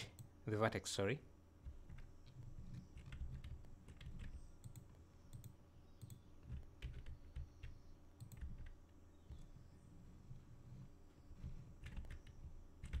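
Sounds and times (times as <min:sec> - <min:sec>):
computer keyboard and mouse clicking: 0:01.6 - 0:09.5, 0:11.4 - 0:13.0.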